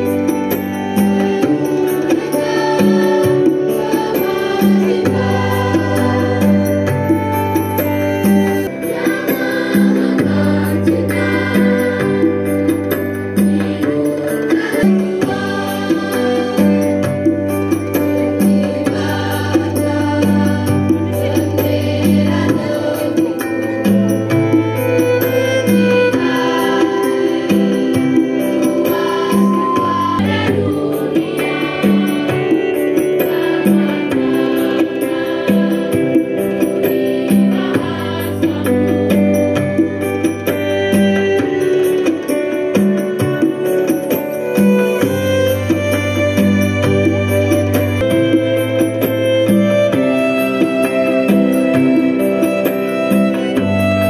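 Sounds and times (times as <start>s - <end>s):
choir singing: 0.0s - 39.9s
electronic keyboard accompaniment: 0.0s - 54.0s.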